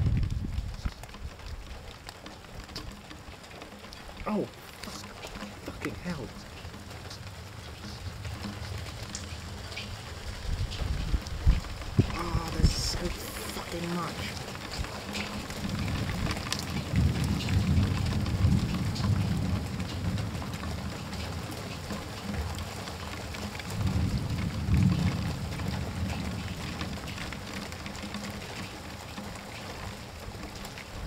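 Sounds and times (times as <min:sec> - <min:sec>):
low thunder rolls: 0:00.0 - 0:01.0, 0:07.0 - 0:13.2, 0:14.1 - 0:23.0, 0:23.6 - 0:27.8
heavy rain falling: 0:00.0 - 0:31.0
raindrops ticking close by: 0:00.0 - 0:31.0.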